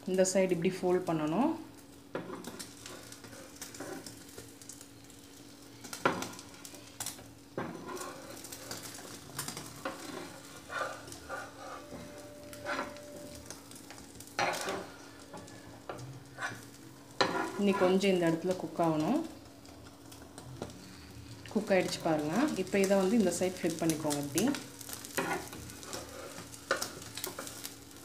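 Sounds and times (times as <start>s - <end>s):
egg sizzling: 0.0s - 28.0s
faint steady hum: 0.0s - 28.0s
metal spatula scraping a pan: 2.1s - 4.1s, 7.6s - 13.4s, 14.4s - 18.2s, 25.0s - 27.8s.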